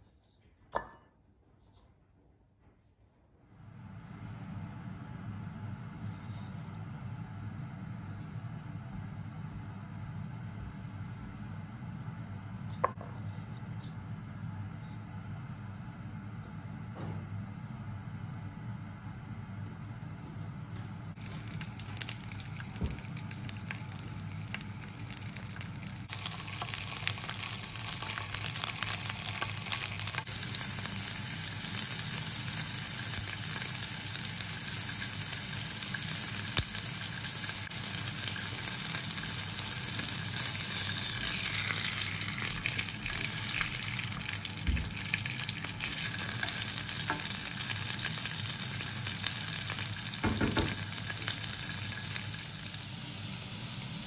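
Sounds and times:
fish sizzling in a grill pan: 21.2s - 54.0s.

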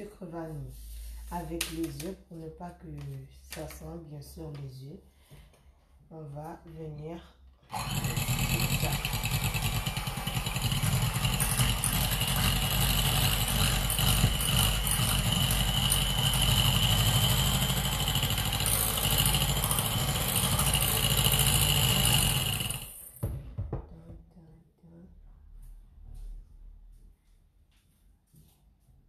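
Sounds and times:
electric hand mixer whining: 7.7s - 23.2s.

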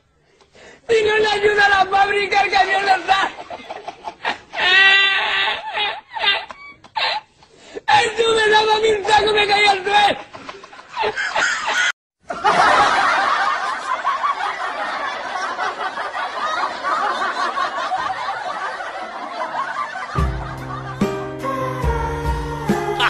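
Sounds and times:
people laughing and giggling: 3.0s - 7.4s, 10.2s - 21.2s.

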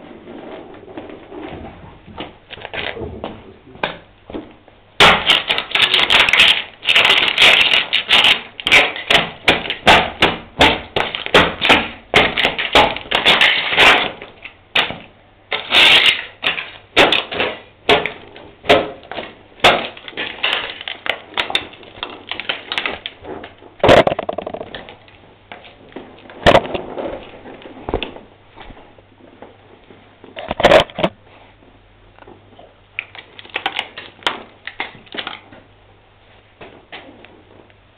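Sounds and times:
glass and plastic crushed on concrete: 5.0s - 28.2s, 33.0s - 35.5s.

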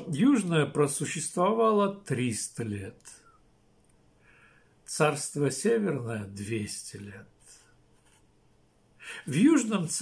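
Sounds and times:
person breathing in: 4.2s - 4.8s, 9.0s - 9.3s.

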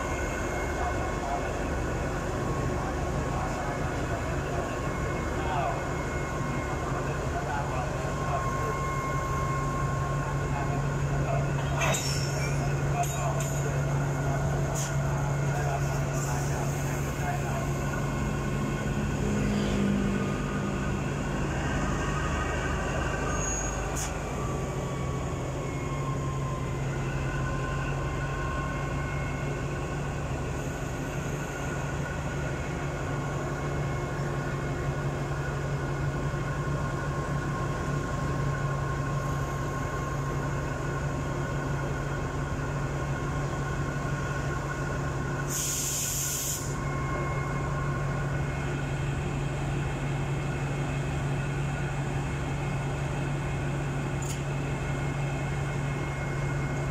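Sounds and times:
faint steady whines: 0.0s - 56.9s
locomotive engine idling: 0.0s - 56.9s
air hiss: 45.5s - 46.8s.

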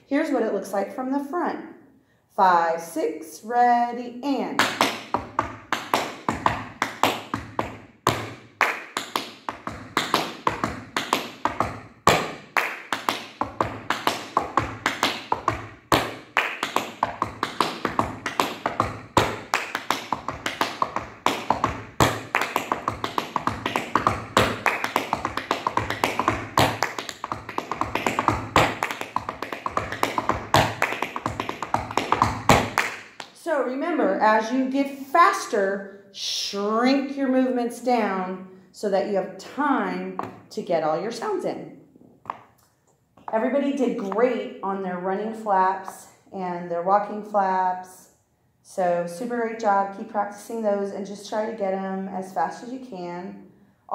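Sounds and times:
tap shoes on wooden floor: 4.6s - 33.4s, 40.1s - 40.4s, 42.2s - 42.5s, 43.2s - 44.4s.

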